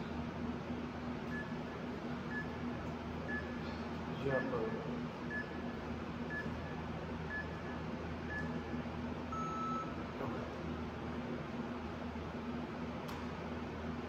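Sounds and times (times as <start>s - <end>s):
steady low hum: 0.0s - 14.0s
longer lower timer beep: 3.3s - 3.6s, 6.3s - 8.7s, 9.3s - 10.0s.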